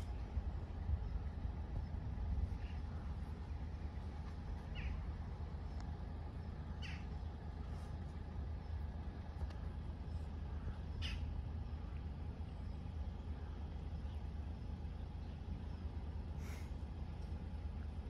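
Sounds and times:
wind buffeting microphone: 0.0 - 4.2
bird chirping: 4.6 - 5.0, 6.4 - 7.4.

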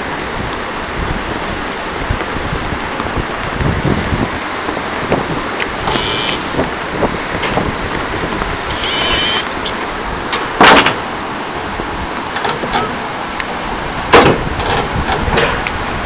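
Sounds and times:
fast river water: 0.0 - 16.0
wind buffeting microphone: 0.0 - 16.0
brief high squeak: 8.7 - 9.4.

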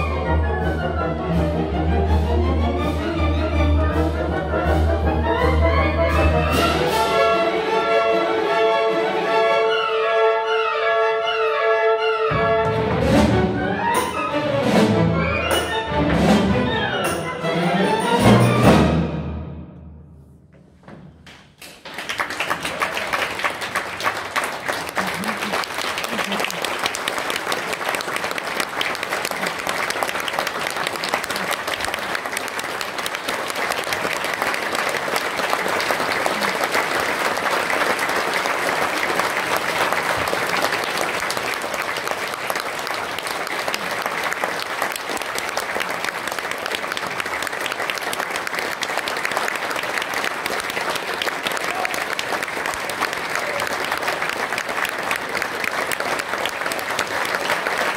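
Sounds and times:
audience applauding: 21.3 - 57.9.

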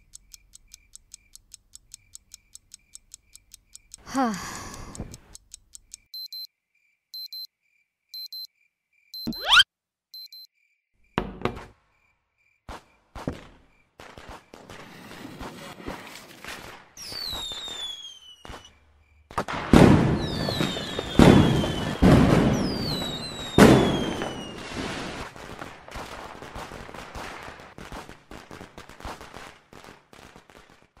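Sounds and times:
firework bangs: 12.7 - 31.0
firework whistling: 17.0 - 18.8, 19.8 - 25.4
firework crackling: 19.5 - 31.0.

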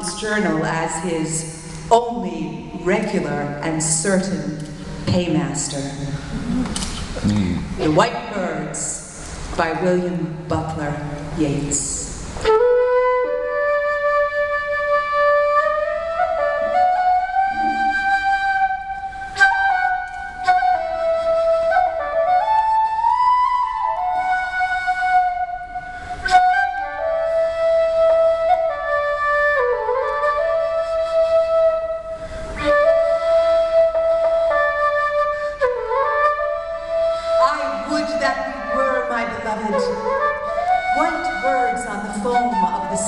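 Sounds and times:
flute playing slow melody: 12.2 - 43.0.

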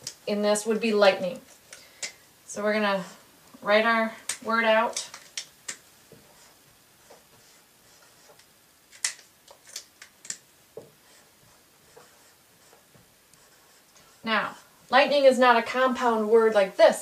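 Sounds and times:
marker writing on whiteboard: 5.7 - 8.5, 10.8 - 15.0.

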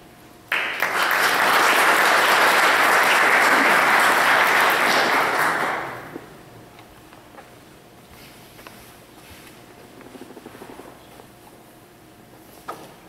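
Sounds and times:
audience applauding: 0.5 - 6.4.

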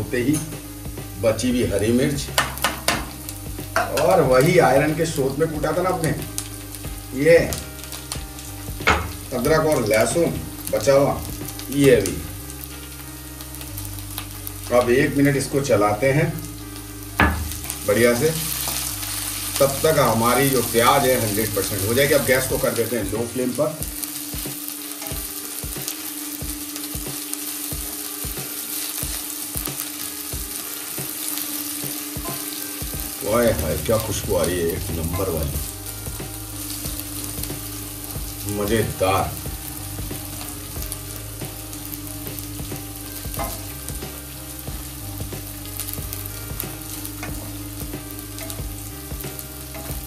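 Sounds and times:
food sizzling in oil: 0.0 - 50.0
spatula scraping and tapping pan: 2.3 - 4.2.

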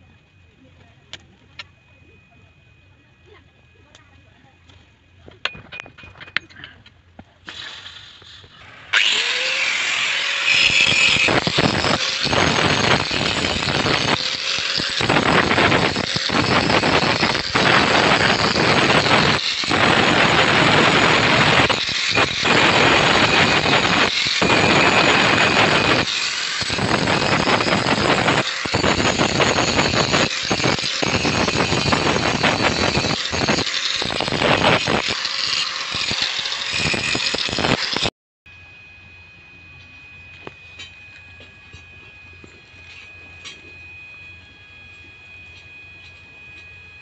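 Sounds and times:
angle grinder grinding steel: 8.8 - 38.1.

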